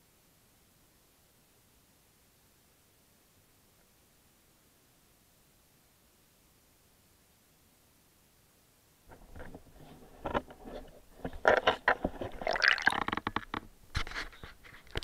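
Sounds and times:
knocks and scrapes on camera housing: 9.1s - 15.0s
water sloshing: 12.2s - 13.3s.

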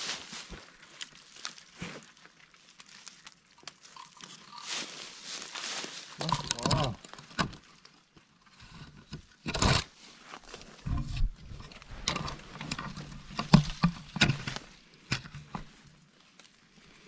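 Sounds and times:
leaf litter crunching: 0.0s - 8.1s
dry branches scraping and snapping: 0.0s - 17.0s.

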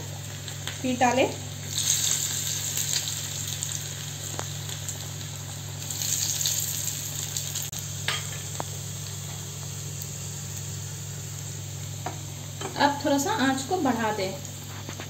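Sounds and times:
garlic sizzling in hot oil: 0.0s - 15.0s.

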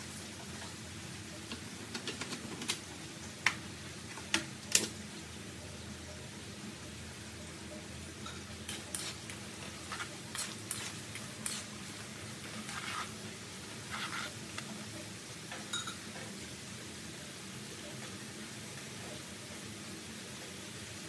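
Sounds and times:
oil sizzling: 0.0s - 21.0s
tongs clinking on metal wok: 8.2s - 13.1s, 15.5s - 16.2s.

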